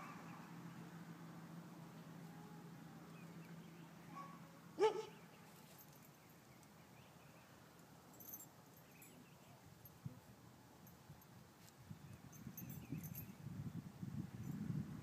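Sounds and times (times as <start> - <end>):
dog barking: 4.1 - 5.2.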